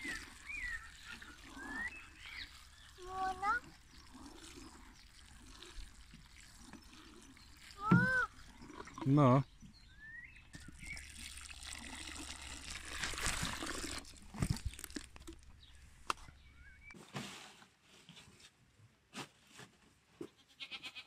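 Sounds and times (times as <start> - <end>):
water sprinkling from watering can: 0.0 - 8.6, 10.6 - 15.5.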